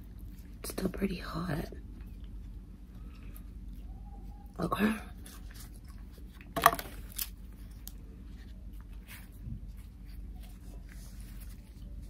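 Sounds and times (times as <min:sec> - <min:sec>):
wrapper rustling and crinkling: 0:05.1 - 0:12.0.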